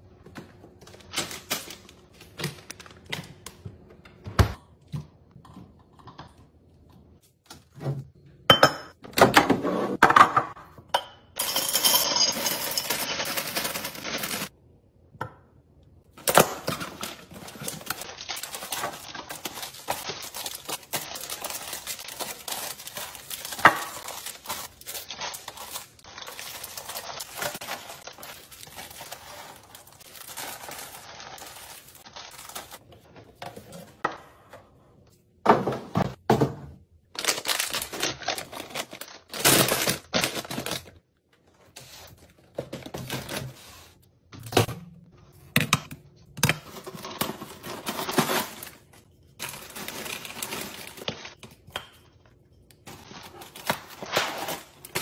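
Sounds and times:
snack pouches crinkling: 0:16.8 - 0:32.8, 0:37.1 - 0:41.0.

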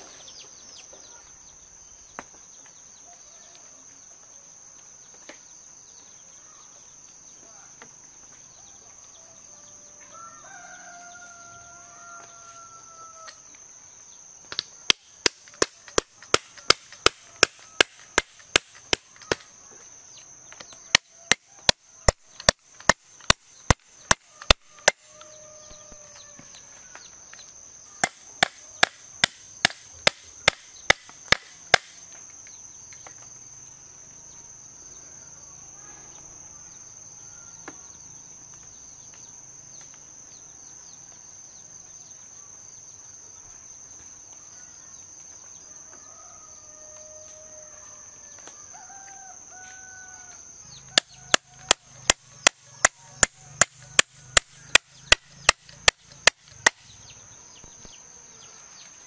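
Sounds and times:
high insect drone: 0:00.0 - 0:59.0
rooster crowing: 0:08.6 - 0:13.6, 0:24.2 - 0:27.2, 0:44.4 - 0:55.2
chopping blows: 0:14.5 - 0:19.5, 0:28.0 - 0:32.1.

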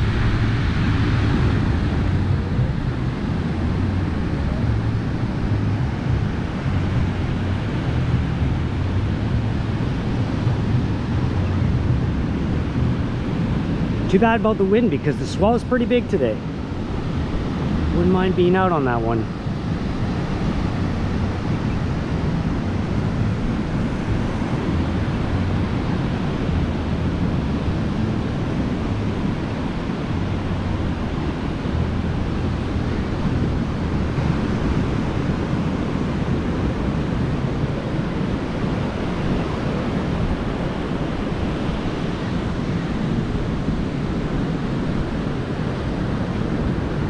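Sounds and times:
ocean surf breaking: 0:00.0 - 0:47.0
wind buffeting microphone: 0:00.0 - 0:47.0.

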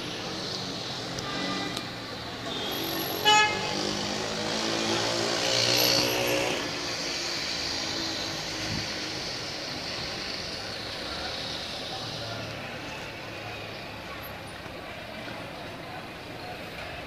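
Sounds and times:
street traffic noise: 0:00.0 - 0:17.0
car horn toot: 0:02.5 - 0:03.7.

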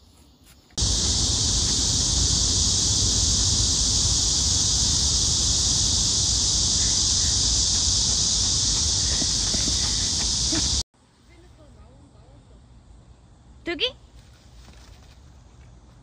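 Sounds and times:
cicadas droning: 0:00.0 - 0:10.8
low rumble: 0:00.8 - 0:10.6.

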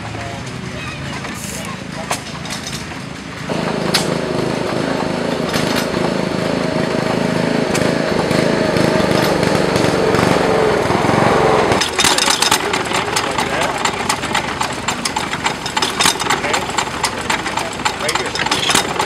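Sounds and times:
stationary gas engine running: 0:00.0 - 0:19.0.

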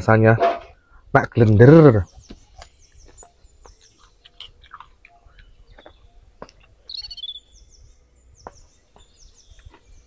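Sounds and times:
birds chirping: 0:00.0 - 0:10.0
bird warbling call: 0:02.0 - 0:07.6
man chewing food: 0:02.6 - 0:06.1, 0:09.0 - 0:10.0.

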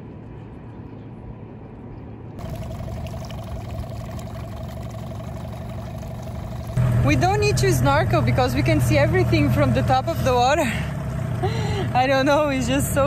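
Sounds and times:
low rush of water: 0:02.4 - 0:06.8
splashing water: 0:02.4 - 0:06.8
outboard motor running: 0:02.4 - 0:13.0.

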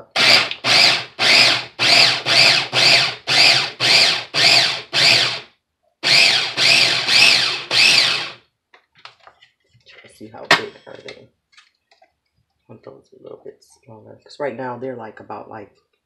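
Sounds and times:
electric food chopper whirring: 0:00.0 - 0:08.4.

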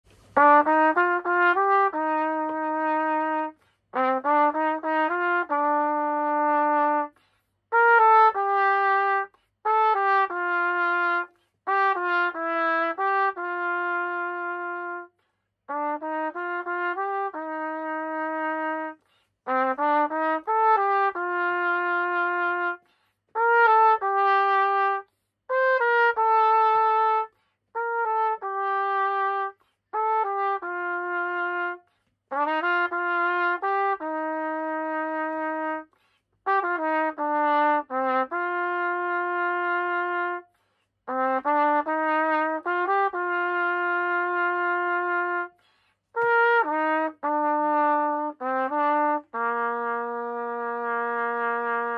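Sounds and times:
solo trumpet melody: 0:00.0 - 0:51.9
player breathing: 0:45.6 - 0:46.1.

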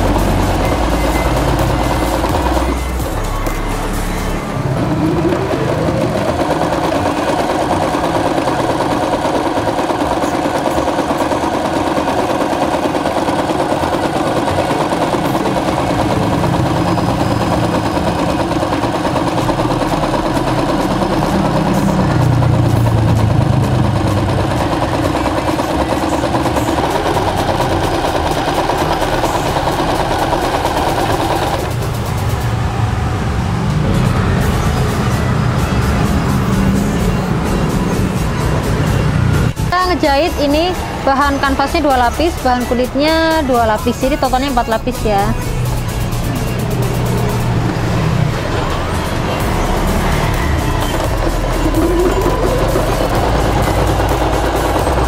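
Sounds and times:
sewing machine sewing: 0:00.0 - 0:32.6, 0:33.7 - 0:55.0.

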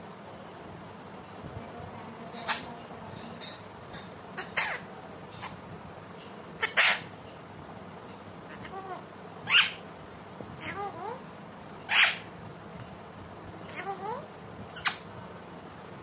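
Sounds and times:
parakeet harsh squawks: 0:04.4 - 0:05.6, 0:06.6 - 0:07.2, 0:08.5 - 0:09.8, 0:10.6 - 0:11.2, 0:11.9 - 0:12.3, 0:13.7 - 0:15.1.

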